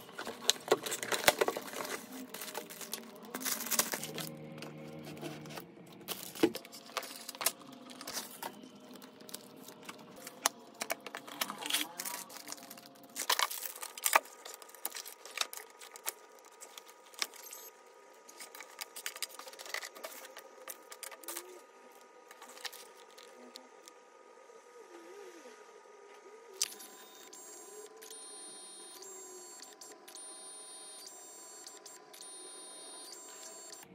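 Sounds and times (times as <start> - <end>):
plastic wrapping rustling: 0.0 - 23.9.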